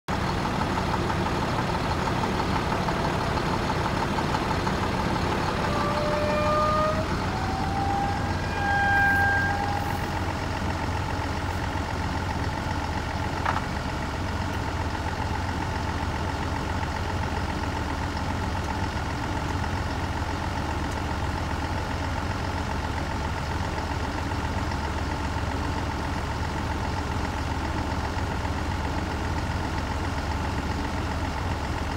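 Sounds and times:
diesel engine running: 0.1 - 31.9
short whining tones: 2.6 - 11.7.

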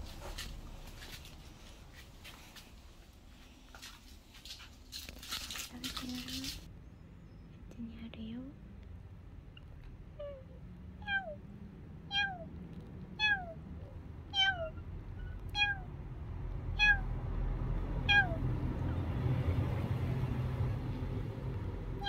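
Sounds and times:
low steady rumble: 0.0 - 22.0
kitten meowing: 10.2 - 11.4, 12.1 - 12.5, 13.2 - 15.9, 16.8 - 17.1, 18.0 - 18.4.

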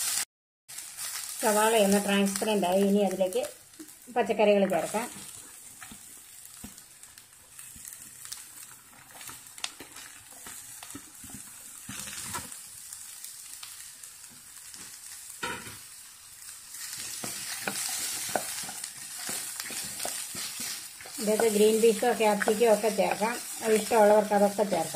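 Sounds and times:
vegetables sizzling in hot oil: 0.0 - 24.9
wooden spatula scraping a pan: 7.6 - 12.6, 16.8 - 24.9.

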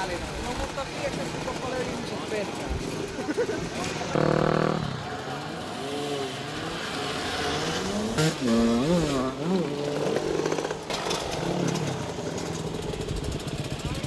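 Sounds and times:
moped engines idling: 0.0 - 14.0
moped engine revving: 0.2 - 14.0.

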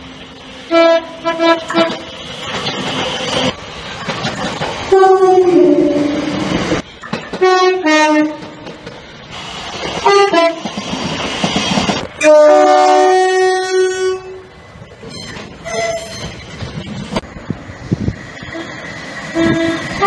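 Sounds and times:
trains rushing: 0.0 - 20.0
train two-tone horns: 0.7 - 2.2, 4.9 - 6.6, 7.4 - 8.6, 10.0 - 10.7, 12.2 - 14.5, 15.1 - 16.3, 19.3 - 20.0.

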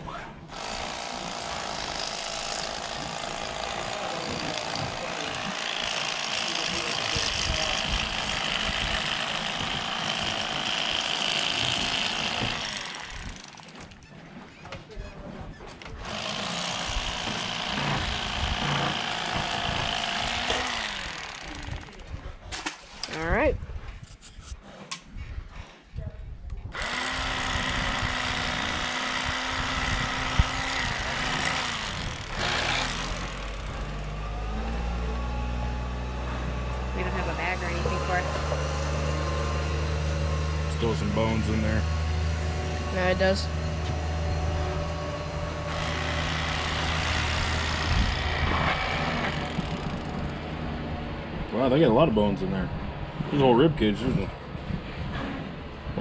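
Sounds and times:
electric fillet knife buzzing: 0.5 - 13.9, 16.1 - 22.0, 26.8 - 34.1, 45.6 - 50.3
low engine hum: 32.3 - 55.9.

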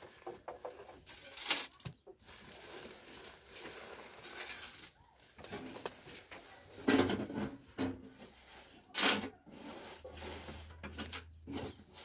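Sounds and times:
dry grain rustling: 0.0 - 12.0.

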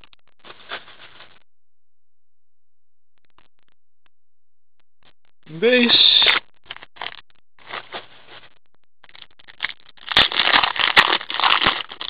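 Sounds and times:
cards crinkling and scraping: 0.4 - 1.4, 6.2 - 12.0.

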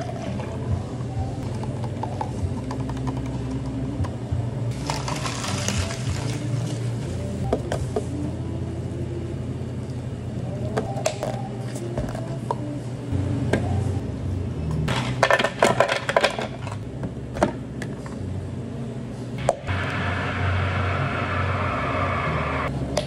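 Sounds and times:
steady low hum: 0.0 - 23.0
ice cubes clattering into blender jug: 4.7 - 6.8.

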